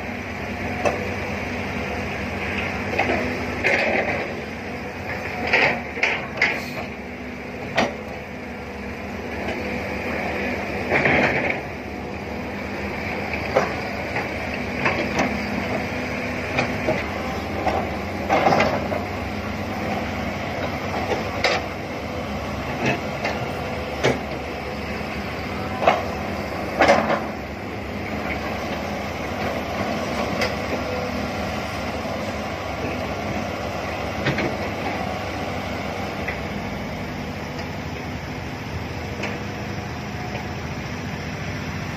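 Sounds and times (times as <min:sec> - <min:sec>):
excavator diesel engine running: 0:00.0 - 0:41.9
excavator bucket clanking: 0:16.5 - 0:19.2, 0:25.7 - 0:27.5.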